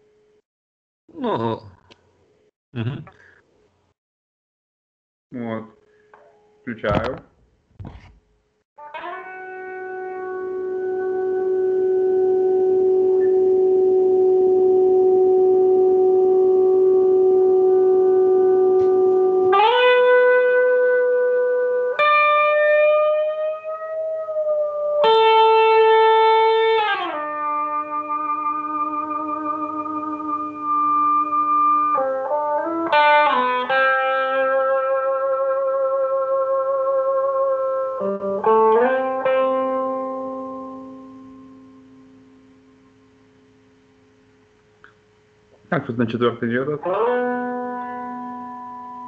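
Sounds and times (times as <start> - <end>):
sustained electric guitar notes: 8.8 - 43.2, 46.8 - 49.0.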